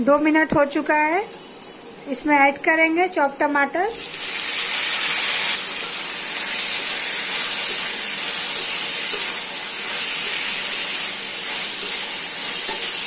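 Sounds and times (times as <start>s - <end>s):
tomatoes sizzling in hot oil: 3.9s - 13.0s
spatula stirring in pan: 5.4s - 13.0s.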